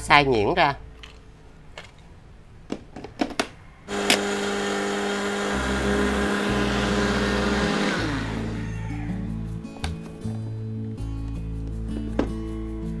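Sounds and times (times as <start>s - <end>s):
blender motor grinding: 3.9s - 8.8s.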